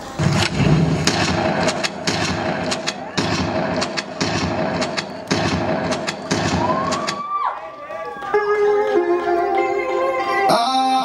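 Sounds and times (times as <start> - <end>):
steady rumble and hum: 0.0 - 6.6
rapid gunshots: 0.0 - 7.2.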